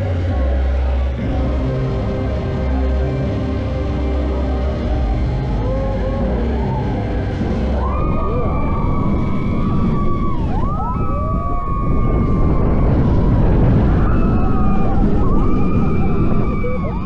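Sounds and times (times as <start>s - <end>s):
roller coaster train rumble: 0.0s - 17.0s
rushing wind: 1.0s - 17.0s.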